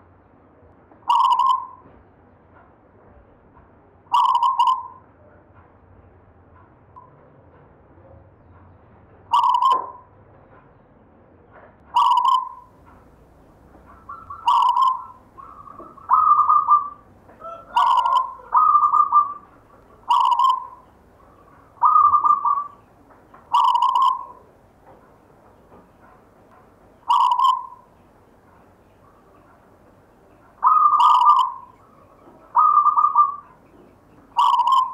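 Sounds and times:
dove cooing: 1.1s - 1.8s, 4.1s - 5.0s, 9.3s - 10.0s, 12.0s - 24.6s, 27.0s - 28.0s, 30.4s - 34.9s.

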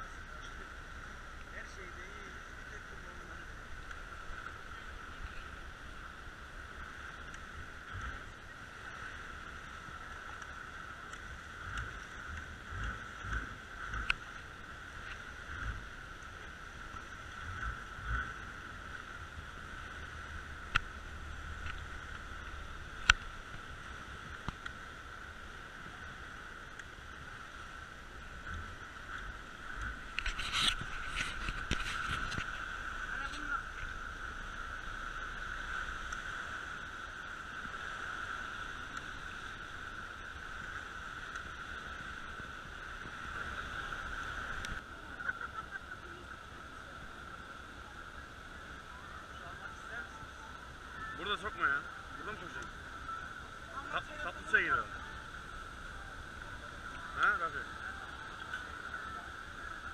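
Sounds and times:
steady high hum: 0.0s - 59.9s
water sloshing against hull: 2.2s - 47.8s.

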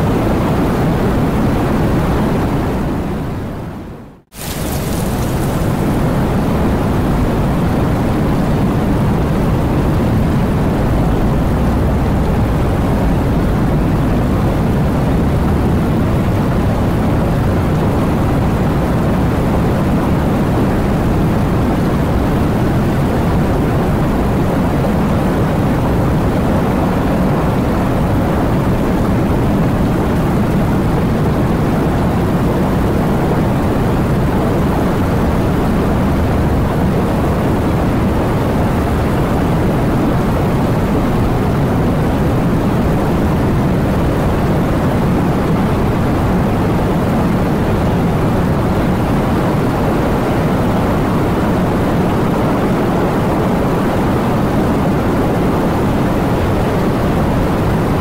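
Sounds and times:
heavy rain falling: 4.3s - 8.7s.

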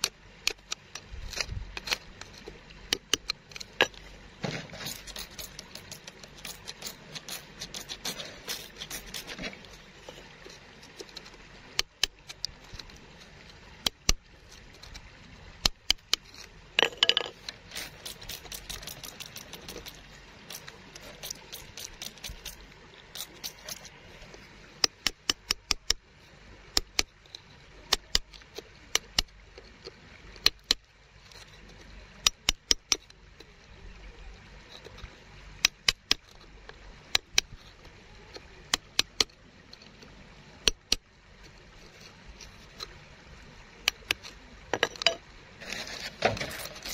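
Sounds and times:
tool tapping on stones: 0.0s - 13.0s, 13.8s - 15.0s, 15.6s - 23.9s, 24.8s - 26.0s, 26.8s - 27.2s, 27.9s - 30.9s, 32.2s - 33.5s, 34.7s - 36.4s, 37.1s - 39.9s, 40.6s - 41.0s, 43.8s - 46.9s.

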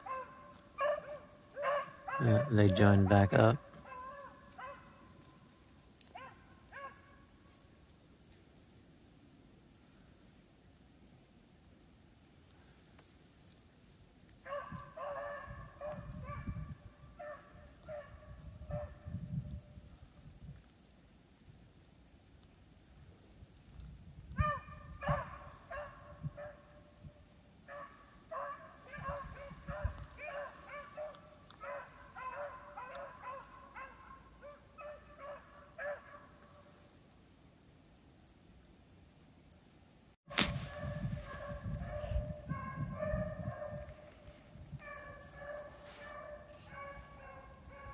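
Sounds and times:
beagles baying: 0.0s - 5.5s, 14.4s - 16.4s, 27.7s - 36.6s, 44.8s - 47.9s.

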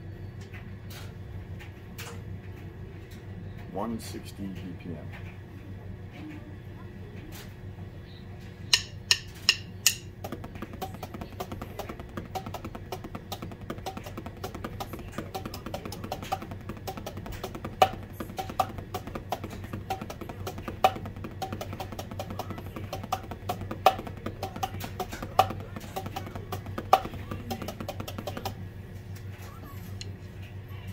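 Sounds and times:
electronic drum kit playing: 10.2s - 28.6s.

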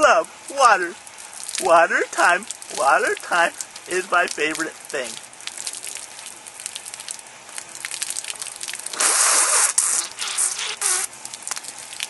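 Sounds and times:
loud gushing spray: 0.0s - 6.2s, 8.2s - 11.2s
hose water splashing and dripping: 0.0s - 12.0s
water spurting from a mouth: 1.1s - 12.0s.

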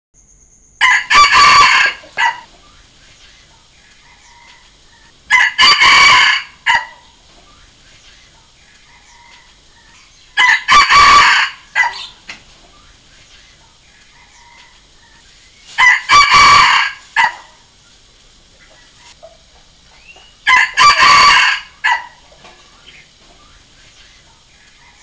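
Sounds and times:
rooster crowing: 0.8s - 2.5s, 4.0s - 7.2s, 8.9s - 12.2s, 14.1s - 15.2s, 15.8s - 17.7s, 20.2s - 22.3s
faint bird calls: 1.6s - 5.5s, 6.4s - 10.6s, 11.6s - 15.9s, 17.2s - 20.6s.

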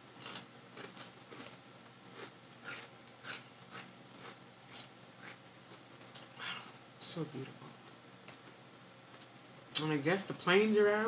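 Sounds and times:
chips being chewed: 0.1s - 6.4s.

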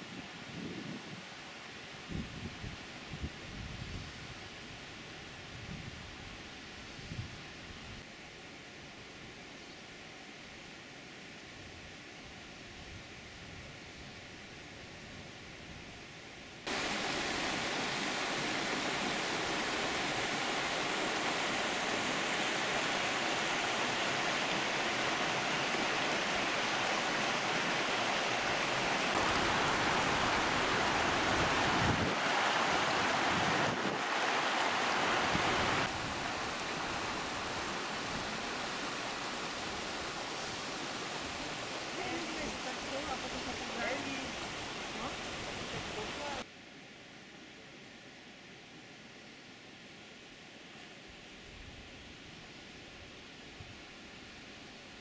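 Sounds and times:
stream rushing over rocks: 16.7s - 46.5s.

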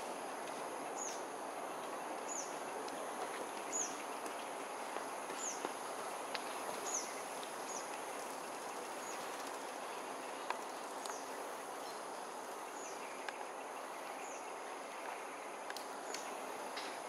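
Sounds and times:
insect chorus: 0.0s - 17.0s
faint clicks: 10.4s - 11.3s, 15.0s - 17.0s.

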